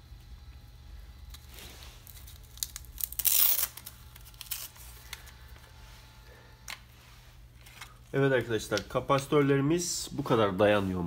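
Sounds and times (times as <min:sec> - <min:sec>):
rustling tearing handling noise: 0:01.2 - 0:05.8.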